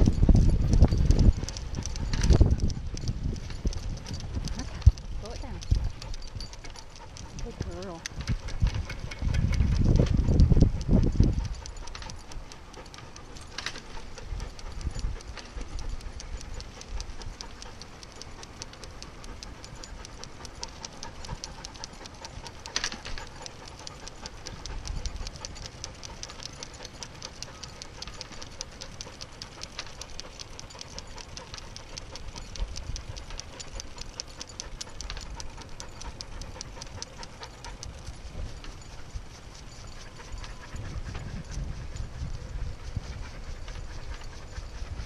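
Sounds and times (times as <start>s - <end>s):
dog panting: 0.0s - 45.0s
rapid steady ticking: 0.0s - 45.0s.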